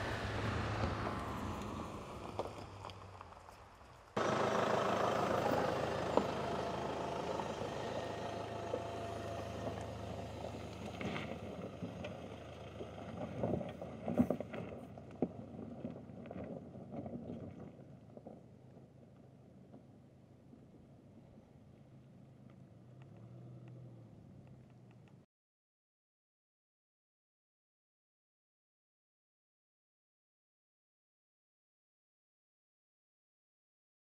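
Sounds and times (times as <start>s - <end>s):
car engine running: 0.0s - 3.3s, 4.2s - 16.1s.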